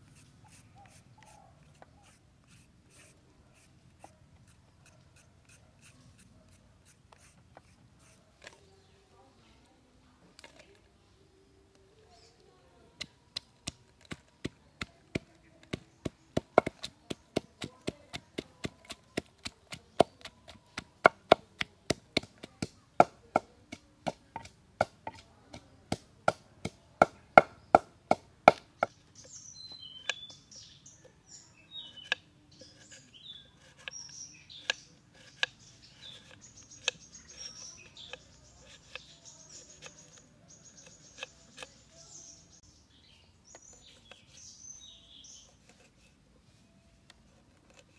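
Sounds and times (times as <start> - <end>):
birds chirping: 7.2 - 47.9
pestle pounding in a mortar: 15.2 - 28.7.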